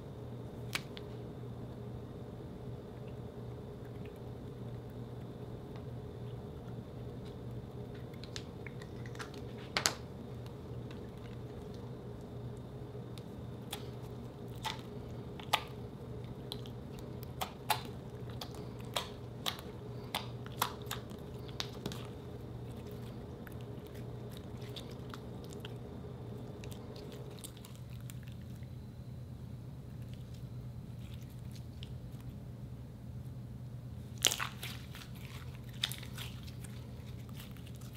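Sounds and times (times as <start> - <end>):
slime squishing by hand: 5.2 - 28.7, 34.1 - 37.9.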